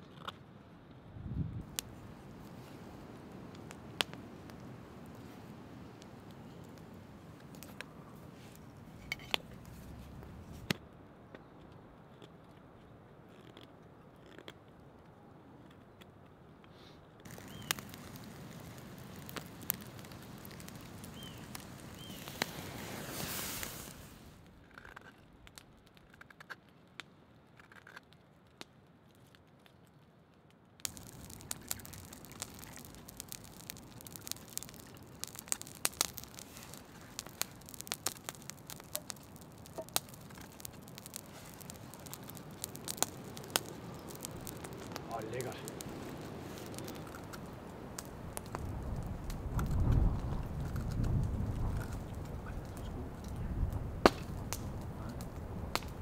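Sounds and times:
faint bird chirps: 17.4 - 17.8.

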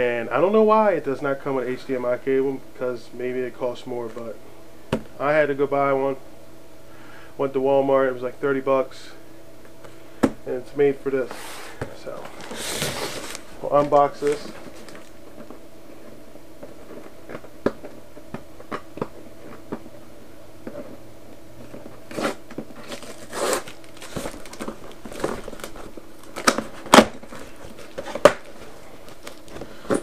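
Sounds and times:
faint steady hum: 0.0 - 30.0
cardboard and tape tearing: 11.3 - 15.1, 22.0 - 30.0.

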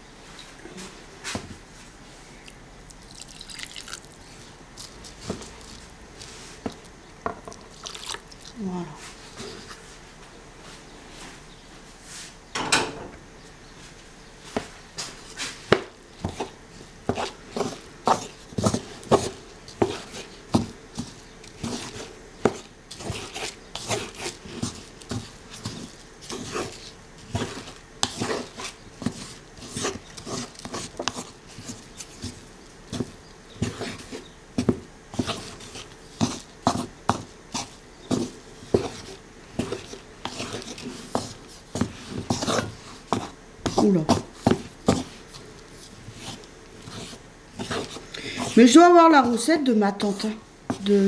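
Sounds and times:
hands raking grains in wooden bowl: 17.1 - 51.0.

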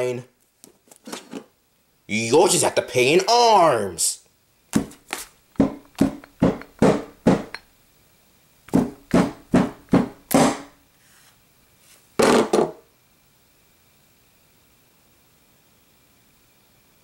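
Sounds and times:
hammer blows on stuffed toy: 8.7 - 10.8.

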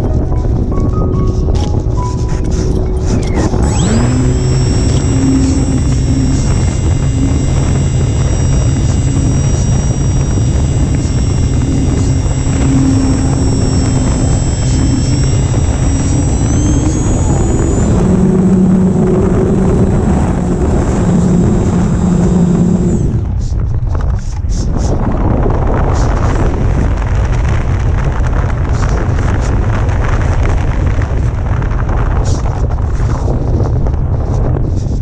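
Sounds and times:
electric motor whine: 0.0 - 23.7
wind rush on microphone: 0.0 - 35.0.

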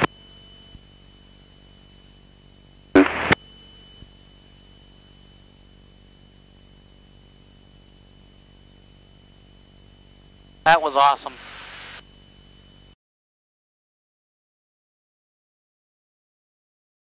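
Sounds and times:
electrical hum with high whine: 0.0 - 13.0
short loud radio burst: 3.0 - 3.4.

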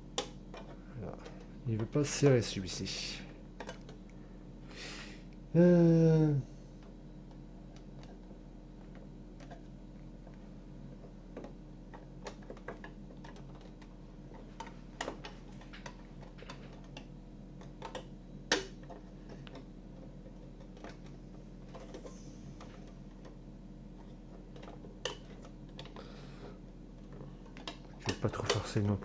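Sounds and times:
low steady hum: 0.0 - 29.0
plastic parts clicking and tapping: 3.6 - 4.0, 11.0 - 23.4, 24.0 - 26.0.

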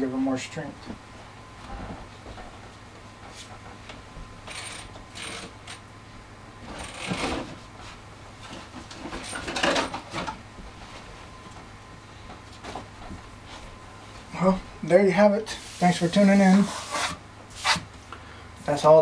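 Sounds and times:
objects clattering on workbench: 8.4 - 10.4.

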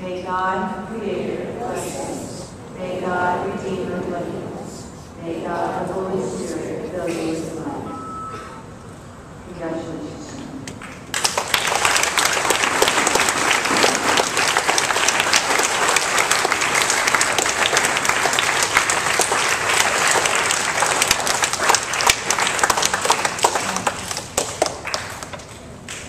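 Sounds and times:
congregation applauding: 10.8 - 26.0.

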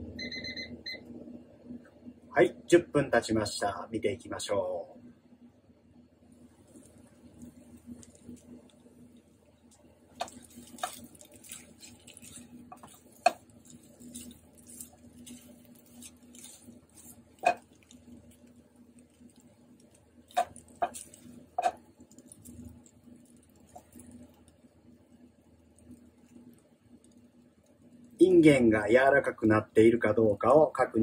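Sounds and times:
faint sizzle: 0.0 - 31.0
beans stirred in frying pan: 6.5 - 28.3
spatula knocking on pan: 17.4 - 17.7.

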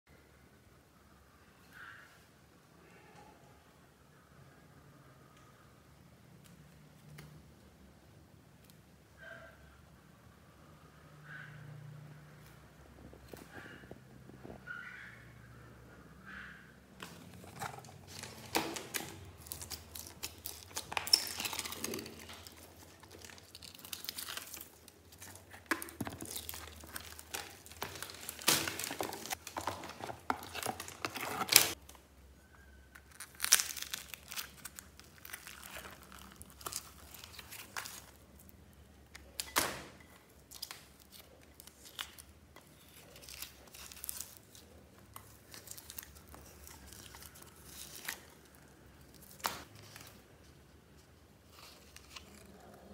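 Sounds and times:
plastic bin liner crinkling: 17.0 - 31.8
sticky slime pulling apart: 33.0 - 38.2.

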